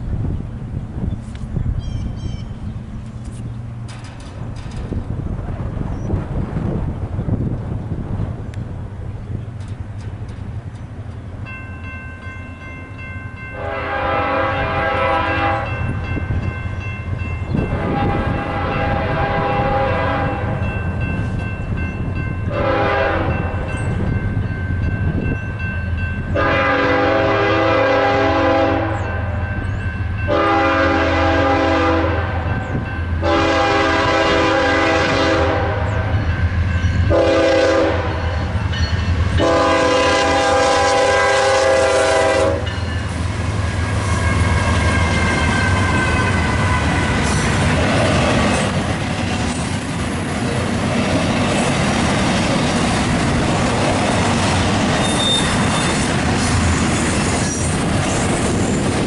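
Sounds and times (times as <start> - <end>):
locomotive air horn: 13.5 - 16.0, 17.6 - 20.6, 22.5 - 23.7, 26.3 - 29.5, 30.3 - 36.2, 37.1 - 38.5, 39.4 - 42.8, 43.8 - 47.6, 55.0 - 56.1.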